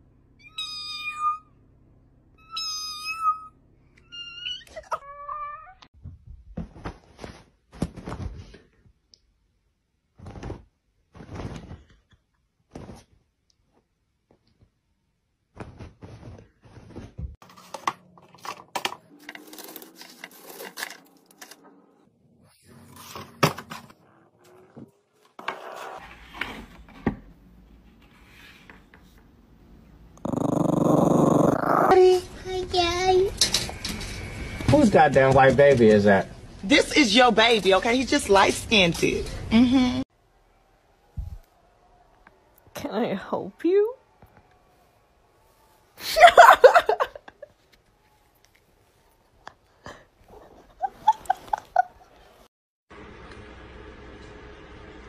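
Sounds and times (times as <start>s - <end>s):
cat meow: 0.4s - 1.5s, 2.4s - 5.8s
rustles and soft thumps on duvet: 10.1s - 12.0s, 15.5s - 17.4s
cardboard scraping on hard surface: 25.3s - 27.2s.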